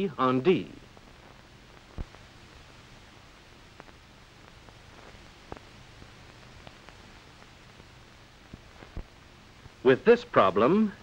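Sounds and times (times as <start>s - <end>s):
film soundtrack hiss: 0.0s - 11.0s
small clicks and pops: 1.0s - 2.4s, 3.7s - 9.8s.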